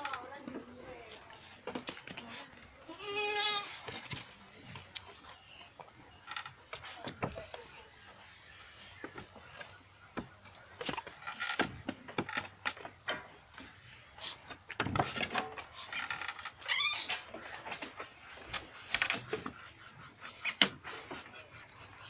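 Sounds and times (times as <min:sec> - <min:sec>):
goat kids snuffling and sucking: 0:00.7 - 0:09.7, 0:13.6 - 0:22.0.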